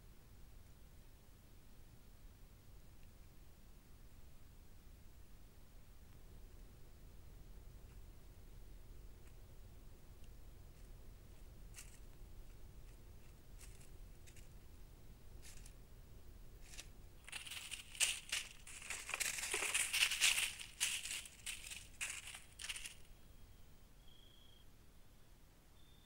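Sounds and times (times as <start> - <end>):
dry leaves rustling and crackling: 12.8 - 14.5, 16.6 - 23.1.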